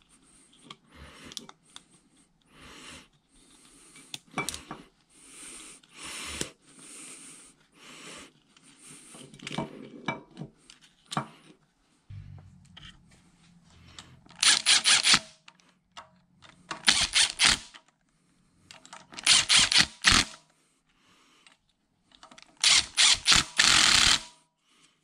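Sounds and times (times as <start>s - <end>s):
metal part scraping: 13.8s - 15.3s.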